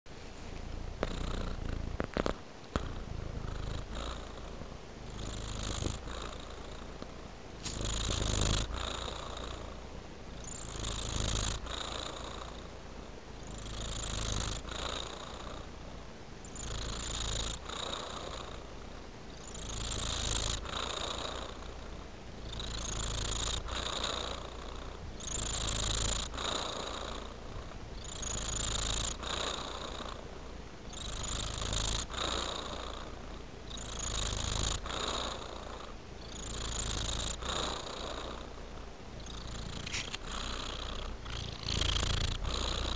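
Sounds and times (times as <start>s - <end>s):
cat purring: 0.2s - 42.9s.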